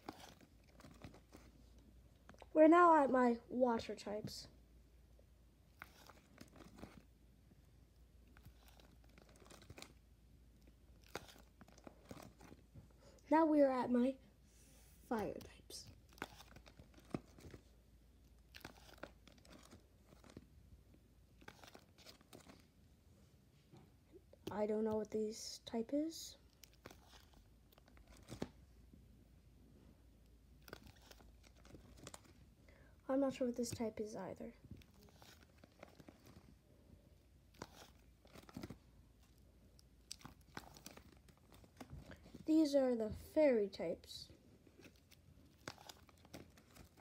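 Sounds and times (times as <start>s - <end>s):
plastic binder pages crinkling: 0.0s - 2.5s, 5.7s - 7.2s, 7.9s - 12.8s, 15.2s - 22.8s, 26.3s - 28.8s, 30.2s - 32.6s, 33.2s - 42.7s, 44.3s - 47.0s.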